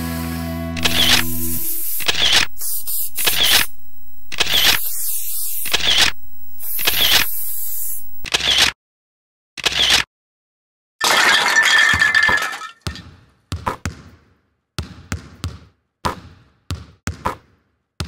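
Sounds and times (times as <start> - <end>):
spray can hissing: 0.8 - 8.3.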